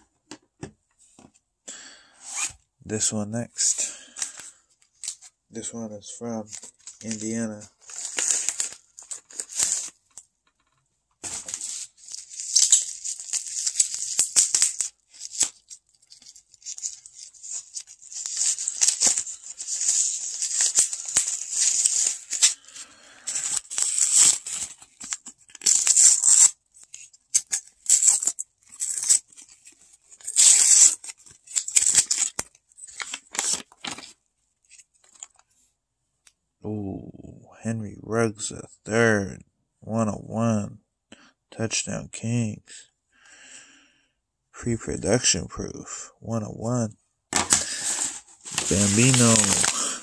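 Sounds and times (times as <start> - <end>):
bubble mailer tearing open: 6.4 - 10.2, 11.2 - 35.3, 47.4 - 50.0
paper and plastic crinkling: 6.4 - 10.3, 11.2 - 35.5, 47.3 - 50.0.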